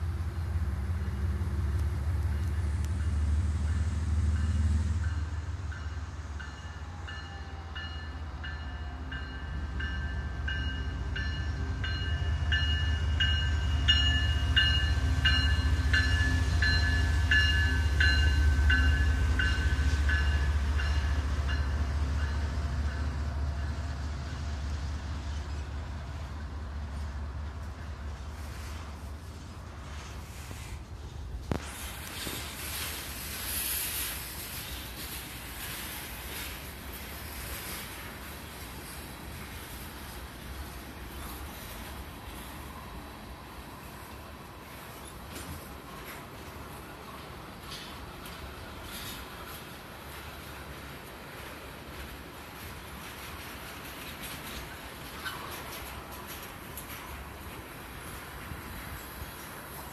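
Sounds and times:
locomotive engine rumble: 0.0 - 59.9
train rolling: 0.0 - 59.9
locomotive bell ringing: 4.3 - 23.1.

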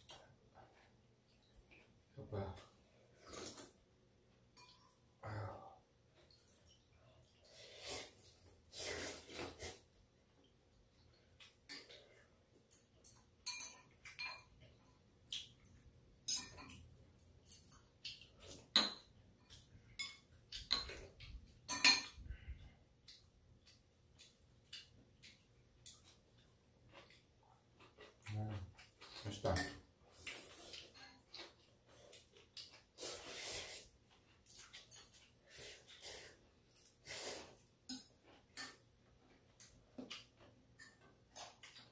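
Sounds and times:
person slurping and chewing: 3.0 - 3.8, 7.3 - 10.0, 30.0 - 38.6
chopsticks and spoons clinking bowls: 11.1 - 32.9, 34.4 - 36.0, 36.8 - 41.9.

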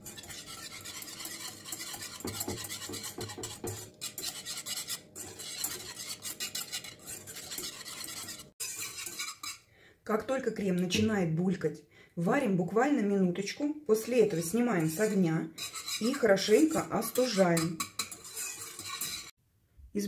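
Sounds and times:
whisk scraping a saucepan: 0.0 - 9.7, 13.9 - 19.4.

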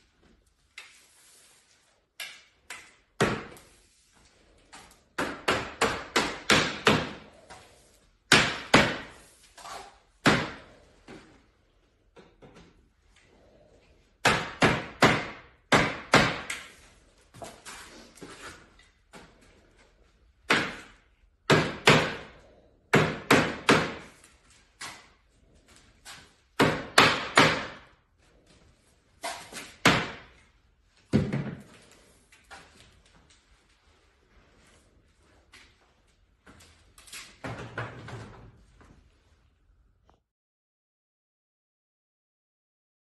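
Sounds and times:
mallet hammering plastic pipe: 5.2 - 7.2, 8.3 - 9.1, 14.2 - 16.7, 20.5 - 22.3, 22.9 - 24.1, 26.6 - 27.9.

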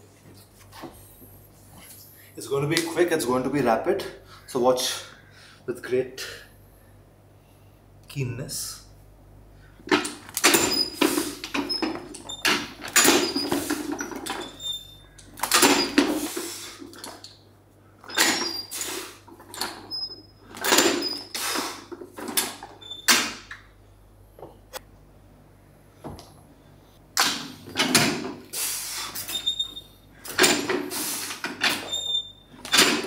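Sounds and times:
barbell scraping and rattling: 9.9 - 14.9
short high squeaks: 13.2 - 16.0, 29.0 - 30.0, 31.7 - 32.5.

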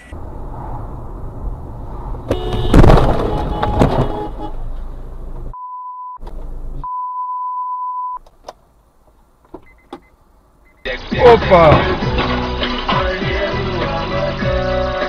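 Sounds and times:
censor bleeps: 5.5 - 6.2, 6.8 - 8.2.

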